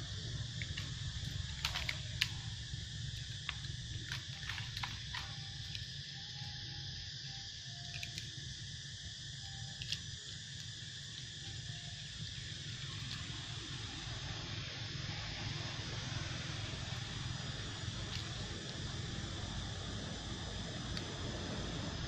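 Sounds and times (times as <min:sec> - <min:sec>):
low rumble: 0:00.0 - 0:07.6
high insect chorus: 0:00.0 - 0:22.0
small clicks: 0:00.6 - 0:02.4, 0:07.2 - 0:08.3.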